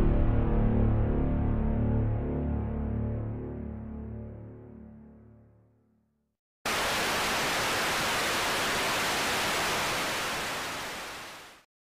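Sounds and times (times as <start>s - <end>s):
static hiss: 6.7s - 11.6s.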